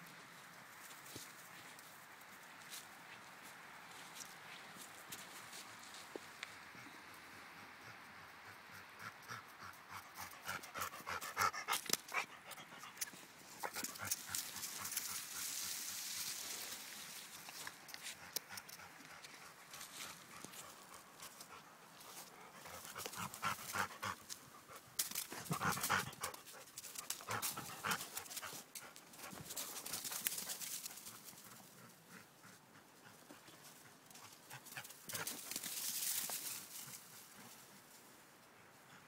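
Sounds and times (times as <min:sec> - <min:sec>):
dog panting: 0:07.8 - 0:15.5, 0:17.6 - 0:35.5
footsteps crunching through leaves: 0:14.1 - 0:18.2.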